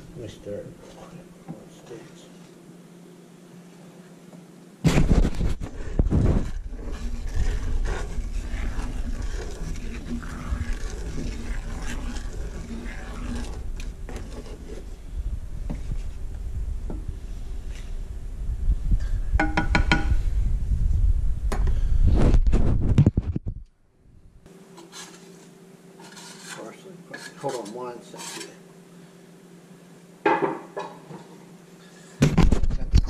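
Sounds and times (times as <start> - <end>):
wooden spoon stirring in pan: 5.2 - 15.0, 15.6 - 17.1, 24.7 - 28.7
steady low rumble: 5.4 - 24.5.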